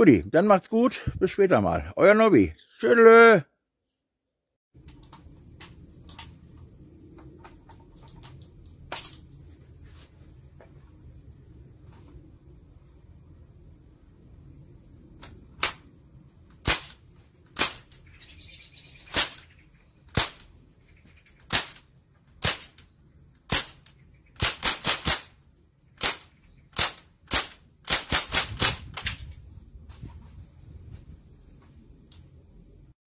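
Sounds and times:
bb gun shots cracking: 20.1 - 20.5, 26.0 - 29.2.

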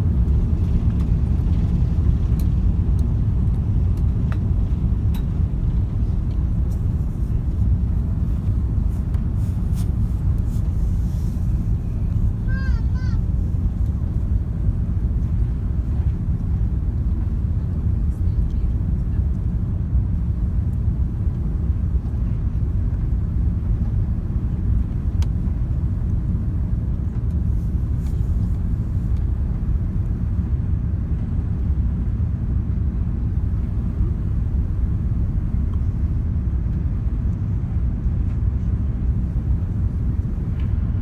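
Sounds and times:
rushing air: 0.0 - 17.1
airliner engines rumbling: 0.0 - 41.0.

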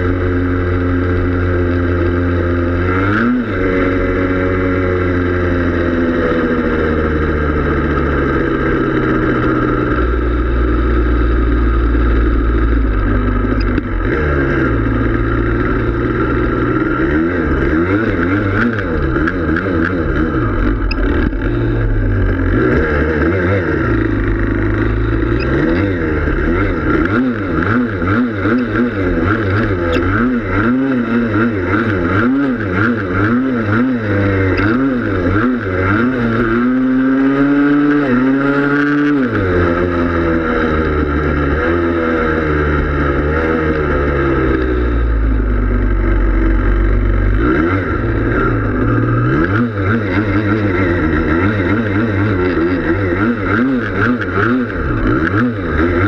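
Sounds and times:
quad engine revving: 0.0 - 56.0.

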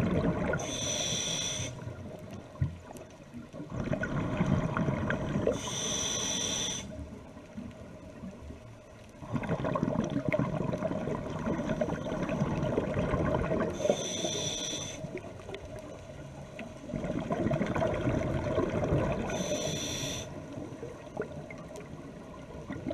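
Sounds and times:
exhaled bubbles gurgling: 0.0 - 6.8, 9.2 - 15.9, 16.8 - 22.9
regulator inhalation hiss: 0.6 - 1.9, 5.5 - 7.0, 13.8 - 15.1, 19.3 - 20.4.

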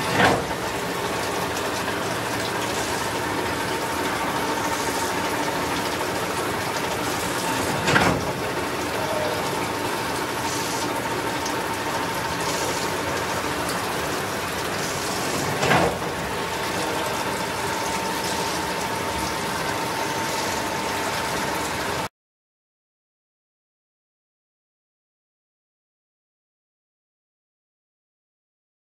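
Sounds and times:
coolant hissing: 0.0 - 22.1
lathe mechanical drone: 0.0 - 22.1.

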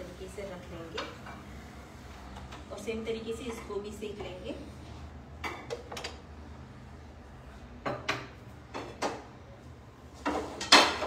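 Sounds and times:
metal pans knocking and clattering: 10.2 - 11.0.

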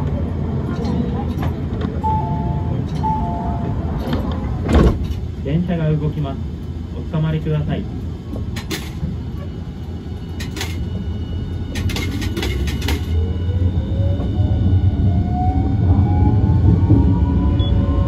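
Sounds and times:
tram low rumble: 0.0 - 18.0.

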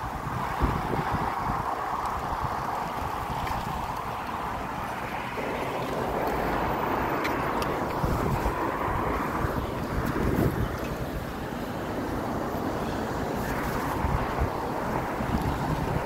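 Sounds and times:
road and traffic noise: 0.0 - 16.0
wind buffeting microphone: 0.0 - 16.0.

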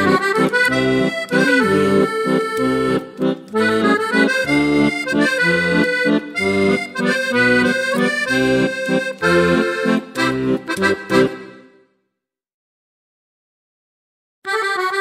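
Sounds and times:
instrumental background music: 0.0 - 11.9.

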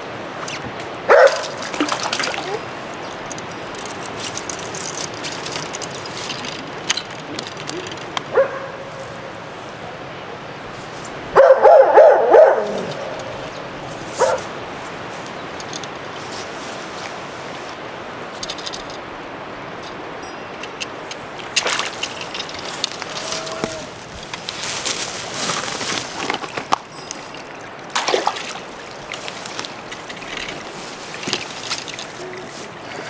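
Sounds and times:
dog barking: 1.1 - 1.5, 8.3 - 8.9, 11.4 - 13.0, 14.2 - 14.5.

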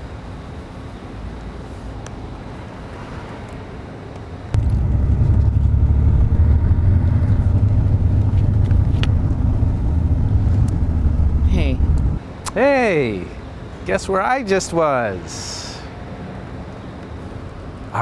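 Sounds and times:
quiet street ambience: 0.0 - 18.0
car rumble from inside cabin: 4.6 - 12.2.

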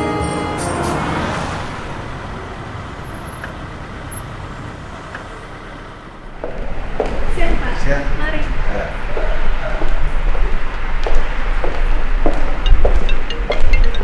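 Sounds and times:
car road noise: 0.0 - 14.0.

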